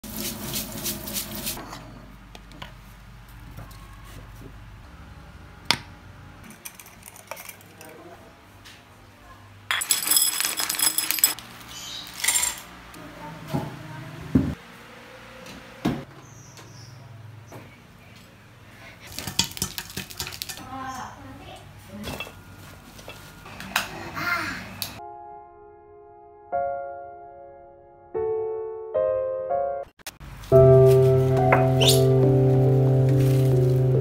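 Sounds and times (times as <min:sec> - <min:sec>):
brush scrubbing at sink: 0:00.0 - 0:01.6
clattering rattle: 0:06.4 - 0:07.9, 0:09.7 - 0:11.4
glass jars clinking: 0:09.7 - 0:12.7.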